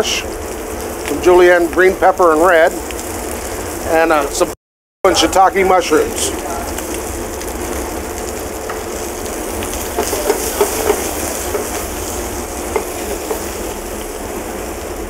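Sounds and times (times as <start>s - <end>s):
shrimp sizzling in oil: 0.0s - 15.0s
utensil clicking against pan: 9.9s - 12.0s, 12.6s - 13.6s.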